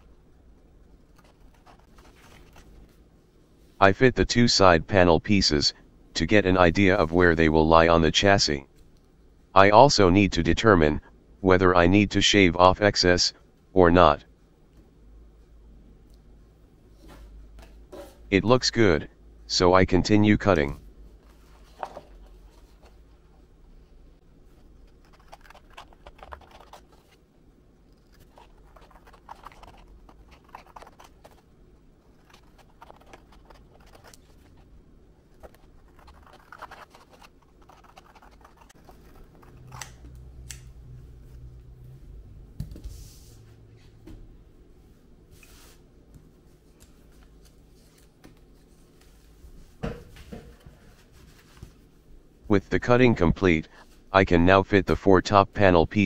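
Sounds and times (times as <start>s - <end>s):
low steady hum: 0.0s - 56.0s
scissors snipping vinyl sheet: 24.9s - 27.1s, 32.2s - 34.5s, 35.4s - 40.7s.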